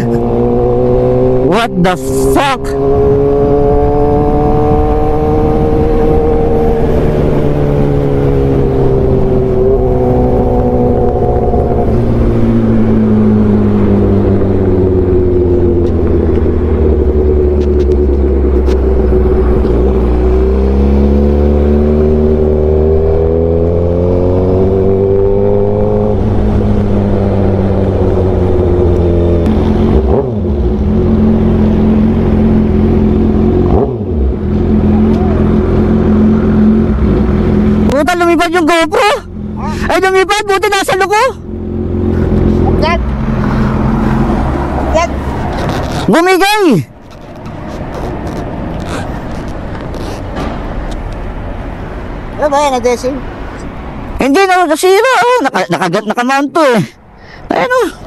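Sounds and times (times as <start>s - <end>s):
motorcycle engine running: 0.0s - 40.1s.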